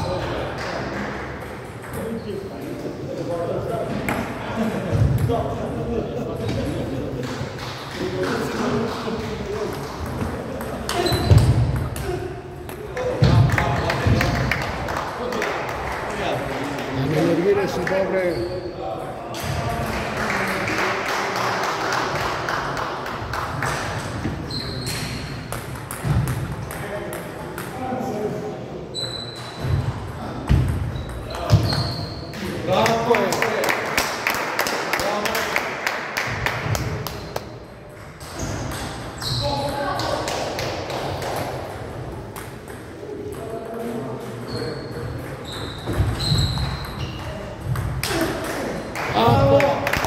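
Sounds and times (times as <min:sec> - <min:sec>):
brief high squeak: 0:28.9 - 0:29.6, 0:31.0 - 0:32.3, 0:44.5 - 0:47.3.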